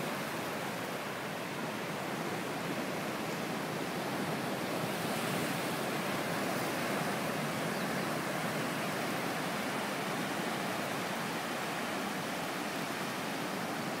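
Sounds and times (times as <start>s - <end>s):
ocean waves breaking on beach: 0.0s - 14.0s.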